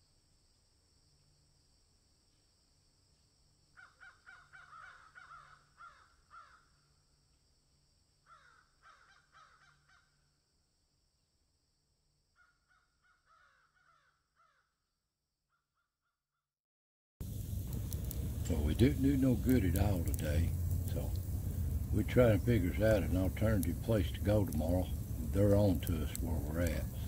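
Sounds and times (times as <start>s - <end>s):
crows cawing: 3.8s - 6.8s, 8.2s - 10.2s, 12.4s - 14.8s
steady high hiss: 17.2s - 27.0s.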